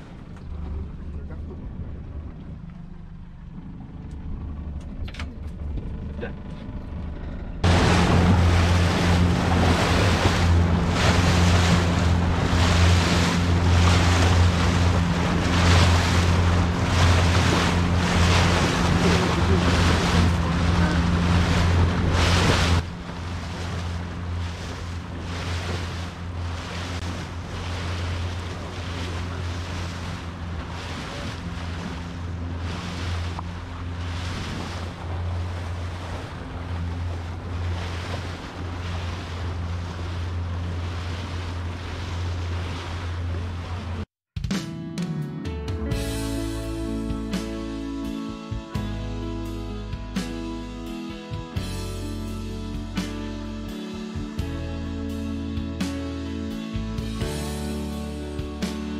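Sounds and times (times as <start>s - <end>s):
boat engine humming: 0.0s - 44.1s, 45.7s - 58.9s
water along hull: 0.0s - 44.3s, 45.8s - 58.9s
wind on microphone: 7.6s - 39.8s.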